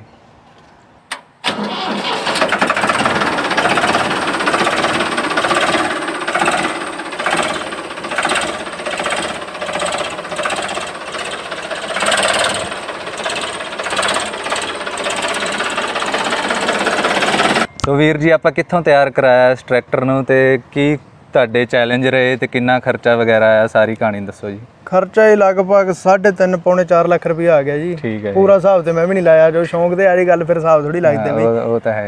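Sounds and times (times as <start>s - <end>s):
tractor diesel engine chattering: 1.4s - 18.3s.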